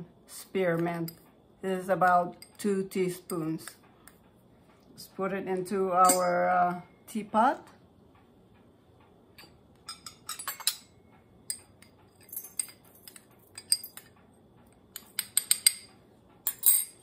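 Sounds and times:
teaspoon clinking on glass bowl: 0:06.0 - 0:06.4.

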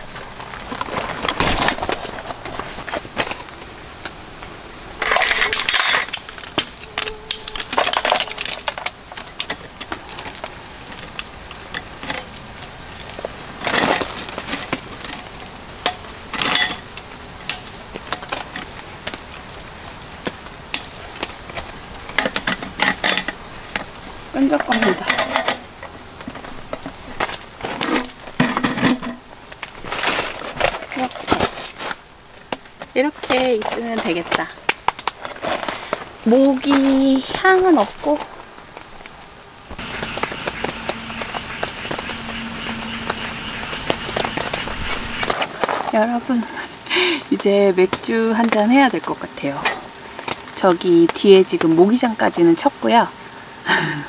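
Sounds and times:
metal frame poles clattering: 0:05.0 - 0:11.2, 0:22.1 - 0:29.2.

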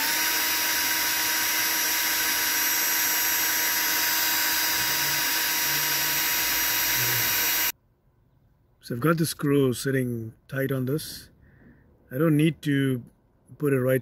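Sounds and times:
electric drill boring metal: 0:00.0 - 0:07.7.

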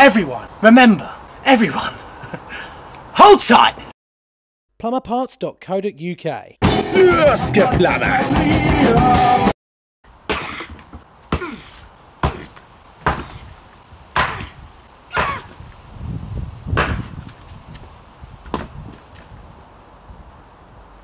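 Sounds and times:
axe chopping logs: 0:10.3 - 0:13.5, 0:14.1 - 0:15.6, 0:16.8 - 0:17.3, 0:18.5 - 0:18.8.

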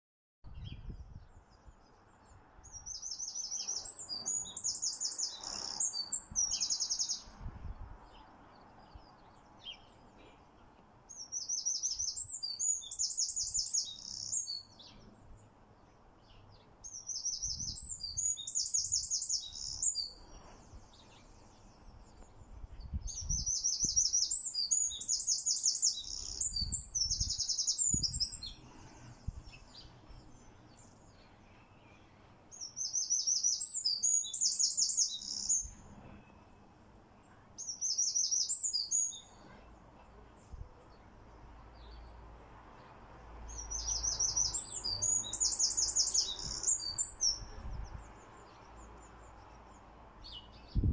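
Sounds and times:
wren trilling song: 0:00.5 - 0:07.4, 0:11.0 - 0:36.6, 0:37.3 - 0:39.8, 0:43.5 - 0:50.9.

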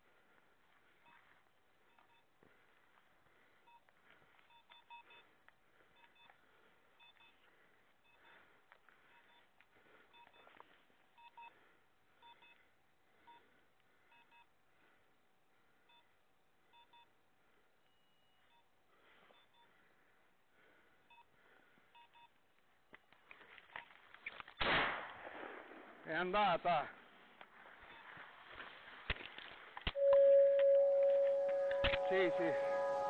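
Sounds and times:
short high electronic beeps: 0:30.0 - 0:33.0.

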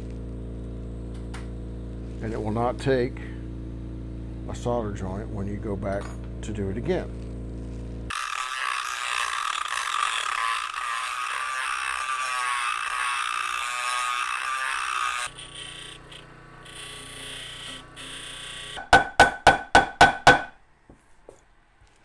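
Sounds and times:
rotary tool whining: 0:06.9 - 0:18.9.

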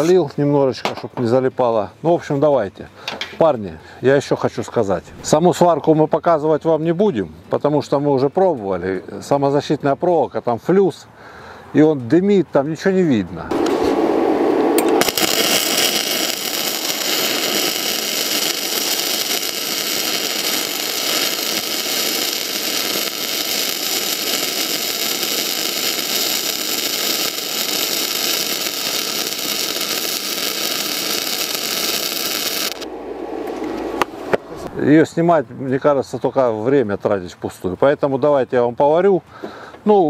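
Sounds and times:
welding arc hissing: 0:13.5 - 0:32.9.

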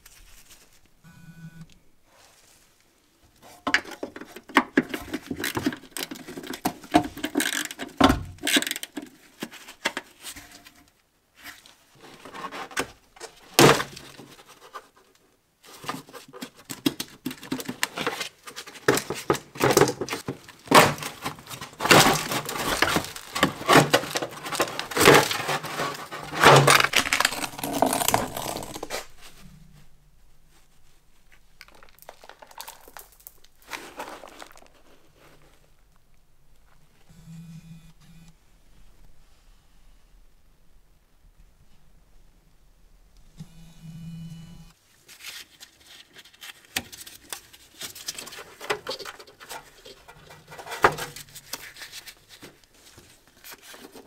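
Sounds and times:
plastic cover scraping and knocking: 0:03.7 - 0:10.1, 0:15.8 - 0:29.5, 0:31.3 - 0:35.7, 0:48.1 - 0:54.0.

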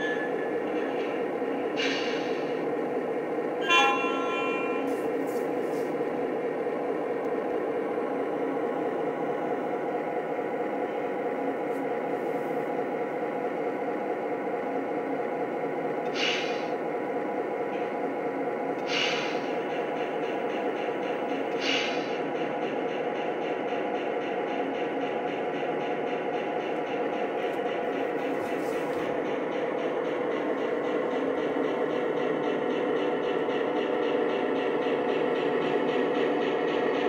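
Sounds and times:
air hissing: 0:18.8 - 0:19.6.

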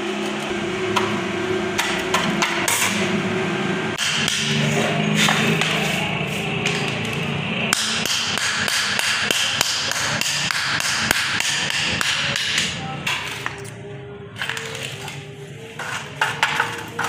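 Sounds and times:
hammer striking steel on anvil: 0:01.8 - 0:03.1, 0:03.9 - 0:06.0, 0:07.7 - 0:13.5.

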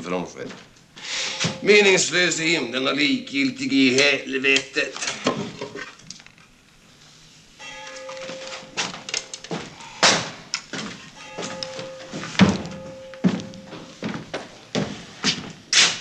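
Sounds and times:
bell-like ringing tone: 0:01.1 - 0:03.9, 0:07.6 - 0:09.5, 0:11.0 - 0:14.0.

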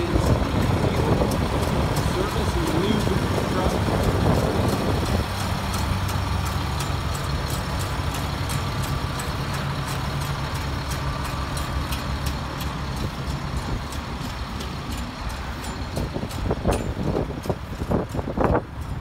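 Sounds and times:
diesel truck engine idling: 0:00.0 - 0:19.0
light regular ticking: 0:00.0 - 0:19.0.

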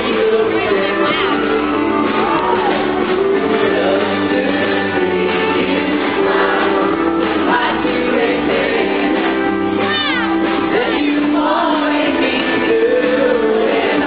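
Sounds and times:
man singing into a microphone: 0:00.0 - 0:01.8, 0:03.5 - 0:08.9, 0:10.7 - 0:14.0
country band playing: 0:00.0 - 0:14.0.

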